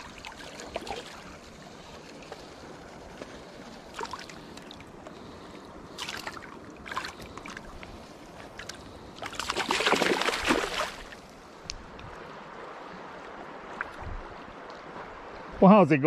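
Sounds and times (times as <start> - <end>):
creek water rushing: 0.0 - 16.0
fish splashing at surface: 8.6 - 11.2.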